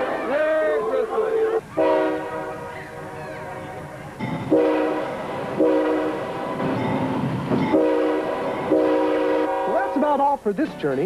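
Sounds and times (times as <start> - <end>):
rumble of moving train: 0.0 - 9.9
locomotive air horn blasts: 1.8 - 2.7, 4.5 - 6.5, 7.7 - 10.0.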